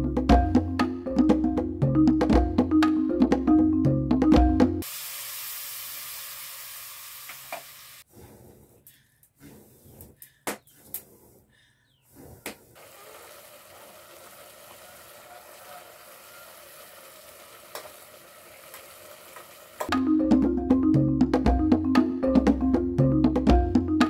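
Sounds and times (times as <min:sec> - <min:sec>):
stew sizzling: 0:04.8 - 0:08.1, 0:12.8 - 0:19.9
loud rhythmic music: 0:19.9 - 0:24.0.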